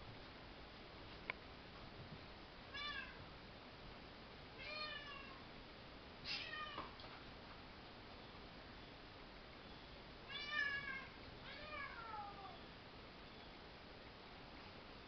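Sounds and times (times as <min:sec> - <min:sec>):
cat meowing: 0:02.7 - 0:03.2, 0:04.6 - 0:05.4, 0:06.3 - 0:06.9, 0:10.3 - 0:12.6.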